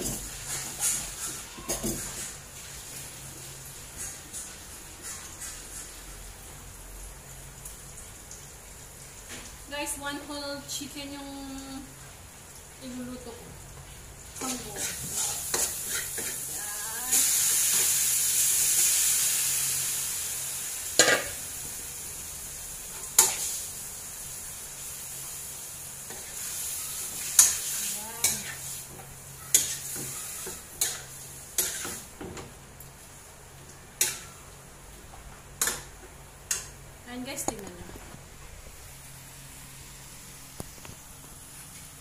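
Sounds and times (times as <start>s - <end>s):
chicken sizzling in butter: 0.0s - 6.6s, 12.8s - 32.2s.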